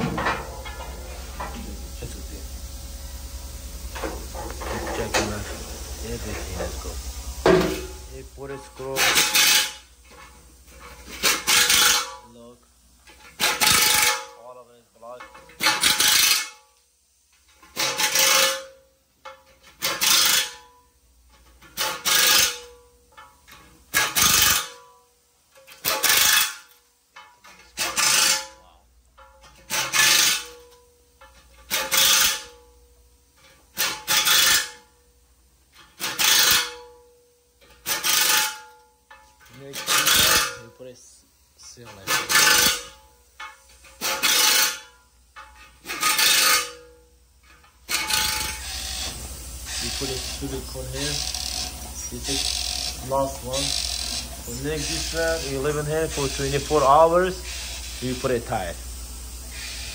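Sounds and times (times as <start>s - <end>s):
rasping rubbing strokes: 4.0s - 9.9s, 10.7s - 12.2s, 25.9s - 26.7s, 27.7s - 28.6s, 36.0s - 36.8s, 39.5s - 40.8s, 41.7s - 43.0s, 43.9s - 45.0s, 45.6s - 46.9s, 47.5s - 58.7s.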